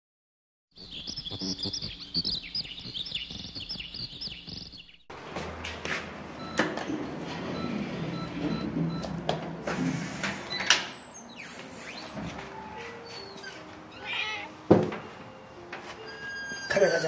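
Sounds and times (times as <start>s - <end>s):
birds chirping: 0.7s - 5.4s, 10.9s - 14.4s.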